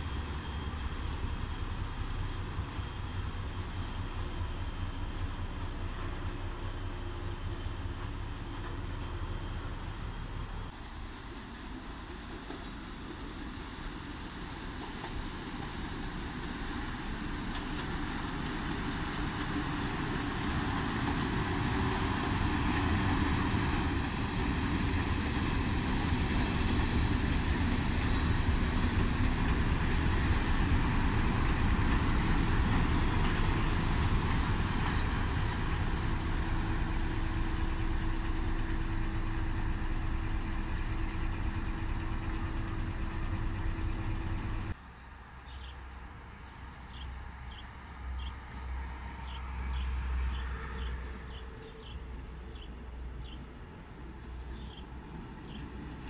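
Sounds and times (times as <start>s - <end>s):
diesel locomotive passing: 0.0s - 44.8s, 47.2s - 56.0s
train wheel squeal: 14.2s - 15.8s, 22.7s - 27.1s, 40.8s - 44.6s.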